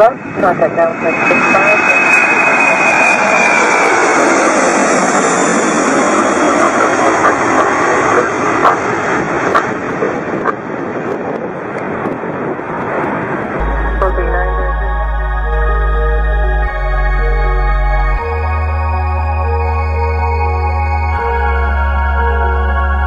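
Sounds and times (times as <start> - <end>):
jet engines rushing and whining: 0.0 - 23.0.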